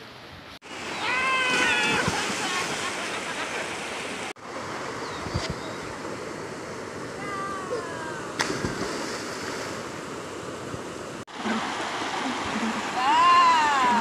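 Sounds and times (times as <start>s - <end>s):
river flowing over weir: 0.1s - 14.0s
person splashing into water: 1.5s - 2.8s, 8.4s - 9.8s.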